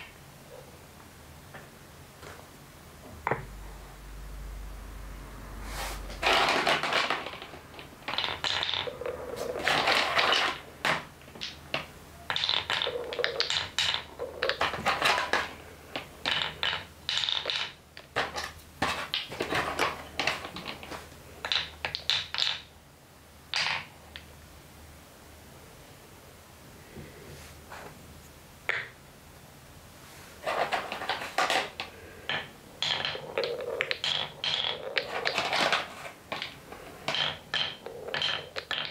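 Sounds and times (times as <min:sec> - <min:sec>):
wooden balls clacking together: 0:00.0 - 0:00.2, 0:06.1 - 0:22.8, 0:23.5 - 0:24.3, 0:28.7 - 0:29.0, 0:30.4 - 0:38.9
wooden balls rolling in channels: 0:06.0 - 0:22.8, 0:23.4 - 0:24.4, 0:30.3 - 0:38.9.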